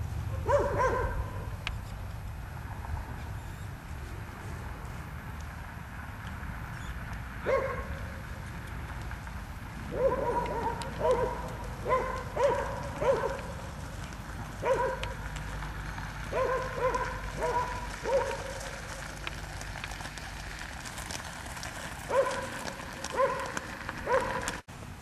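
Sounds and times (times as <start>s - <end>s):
cart rolling on gravel: 0.0s - 25.0s.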